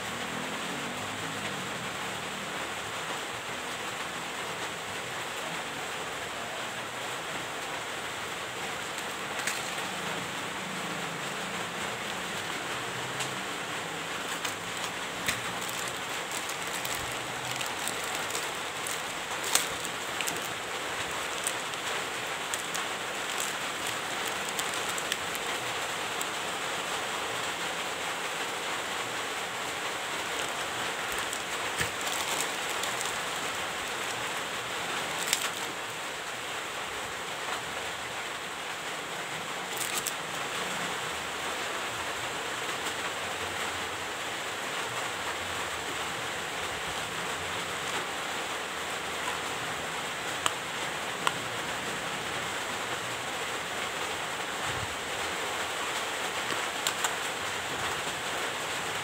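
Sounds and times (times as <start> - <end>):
steady hiss: 0.0 - 59.0
plastic bags crackling: 8.3 - 11.0, 11.6 - 27.8, 28.5 - 36.3, 39.6 - 40.3, 54.5 - 58.3.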